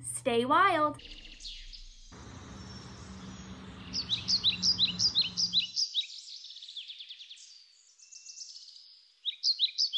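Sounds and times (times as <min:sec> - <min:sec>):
bird trill: 0:01.0 - 0:08.6
birds chirping: 0:01.0 - 0:09.9.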